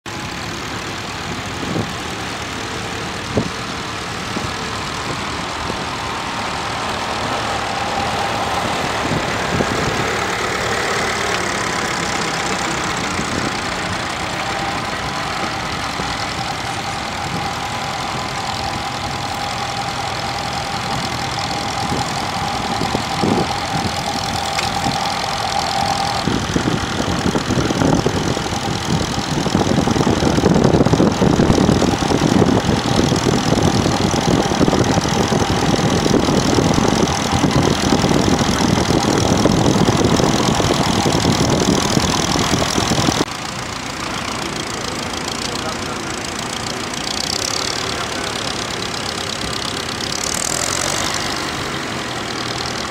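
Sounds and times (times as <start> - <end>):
tractor engine under load: 0.0 - 52.9.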